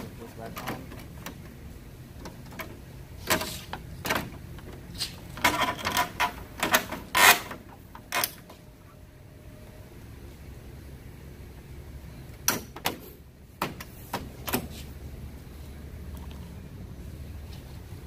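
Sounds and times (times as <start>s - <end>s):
car parts clicking and knocking: 0.0s - 8.6s, 12.3s - 14.9s.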